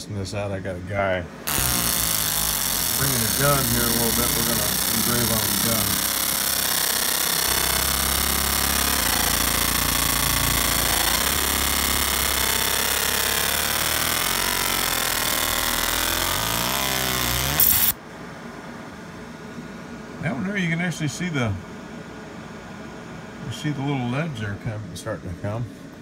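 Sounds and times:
laser engraving buzz with whining tones: 0:01.5 - 0:18.0.

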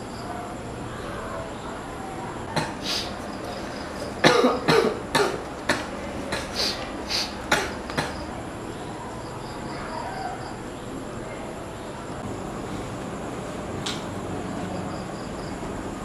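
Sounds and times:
person coughing: 0:04.2 - 0:05.4.

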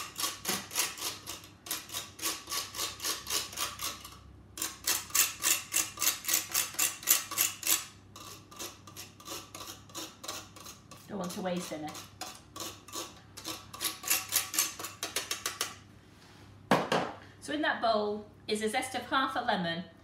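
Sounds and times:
grater rasping: 0:00.0 - 0:15.7
utensil scraping grater: 0:00.0 - 0:15.8.

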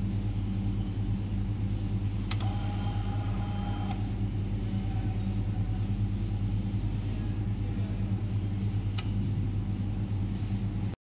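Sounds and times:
low engine-like rumble: 0:00.0 - 0:11.0
click: 0:02.3 - 0:02.6, 0:08.9 - 0:09.2.

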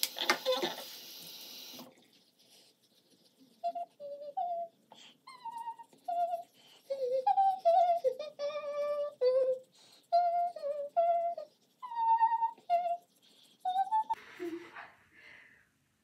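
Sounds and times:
woman humming high-pitched tune: 0:03.6 - 0:14.2.

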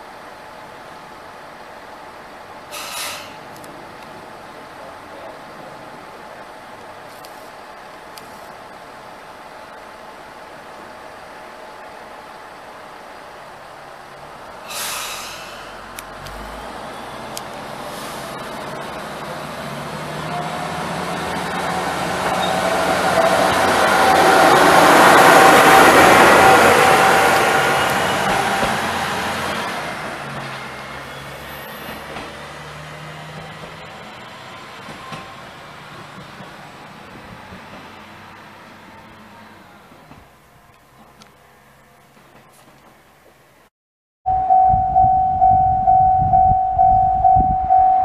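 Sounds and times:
diesel railcar engine: 0:00.0 - 0:43.7
air brakes hissing: 0:02.7 - 0:03.5, 0:14.6 - 0:16.6, 0:17.8 - 0:18.6
train wheel noise: 0:07.0 - 0:39.2, 0:39.8 - 0:43.4.

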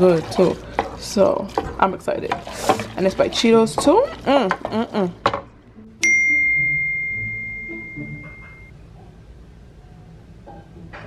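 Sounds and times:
bright bell ding: 0:06.0 - 0:08.7.

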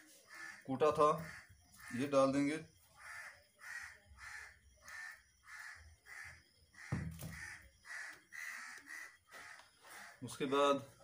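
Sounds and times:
crows cawing: 0:00.2 - 0:10.8
dull knock: 0:06.9 - 0:07.4.

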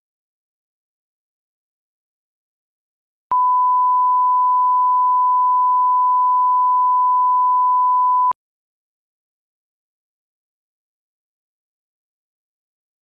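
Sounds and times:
steady test tone beep: 0:03.3 - 0:08.4.

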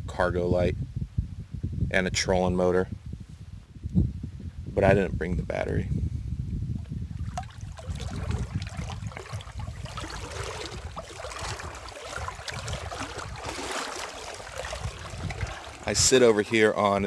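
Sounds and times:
wind buffeting microphone: 0:00.0 - 0:17.0
water lapping at boat hull: 0:07.1 - 0:17.0.

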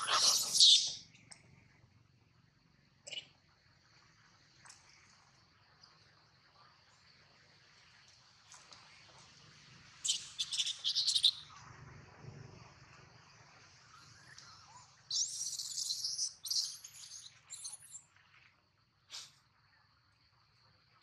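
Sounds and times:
shrill chirping animal calls: 0:00.0 - 0:01.0, 0:10.0 - 0:11.5, 0:14.8 - 0:18.0.

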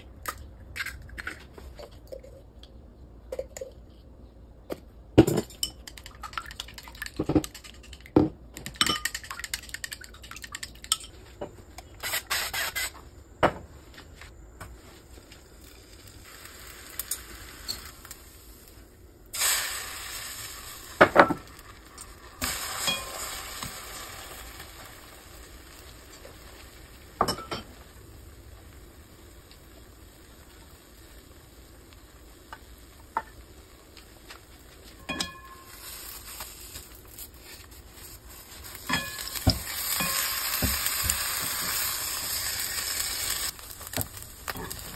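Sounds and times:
food sizzling in pan: 0:14.9 - 0:44.9.

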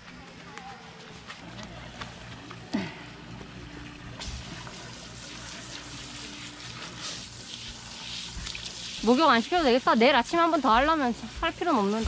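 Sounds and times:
hose nozzle spraying water: 0:04.2 - 0:12.0
water splashing on turf: 0:04.2 - 0:12.0.

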